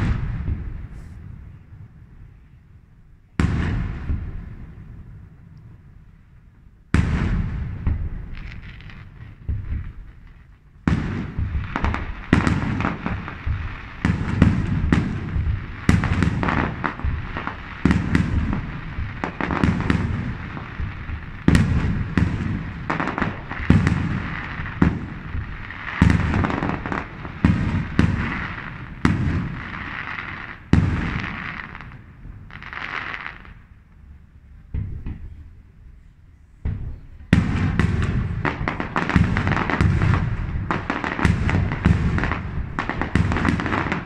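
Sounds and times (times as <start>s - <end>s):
crackling hiss: 0.0s - 44.0s.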